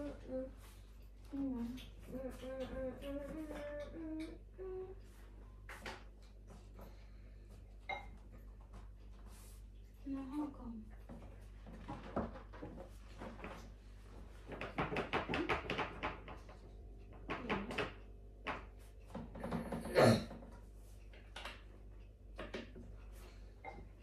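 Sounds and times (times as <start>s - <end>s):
chair parts clicking and knocking: 14.4s - 21.7s.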